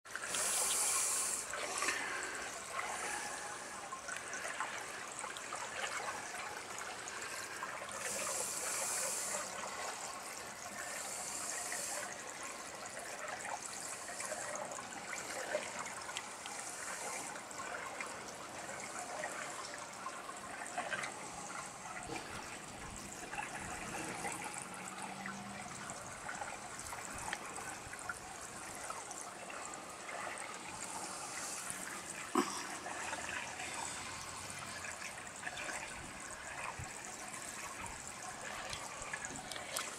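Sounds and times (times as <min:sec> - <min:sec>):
water trickling and splashing: 0:00.1 - 0:39.9
small splashy clicks: 0:15.4 - 0:16.6, 0:38.4 - 0:39.9.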